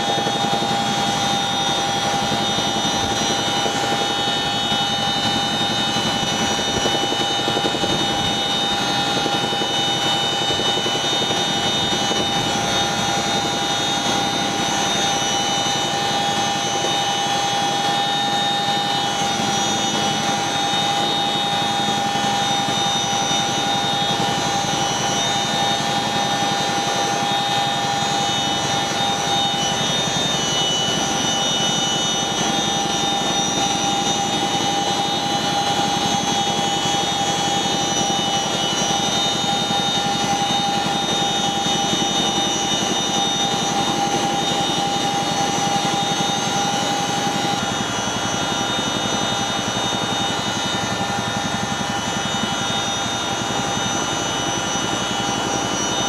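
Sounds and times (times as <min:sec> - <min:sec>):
helicopter engines and rotors: 0:00.0 - 0:56.0
high whine: 0:00.0 - 0:56.0.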